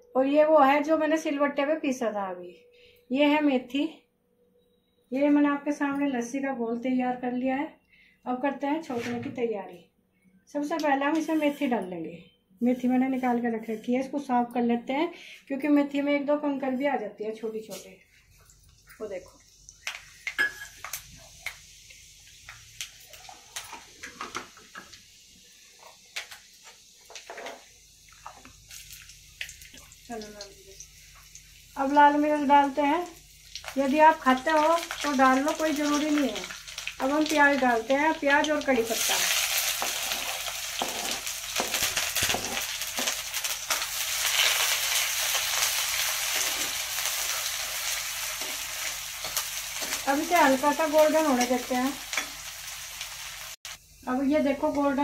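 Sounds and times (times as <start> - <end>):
seeds sizzling in hot oil: 17.7 - 55.0
sharp crackles and pops: 18.7 - 31.6, 32.9 - 53.8
ladle stirring and scraping pan: 39.0 - 43.2.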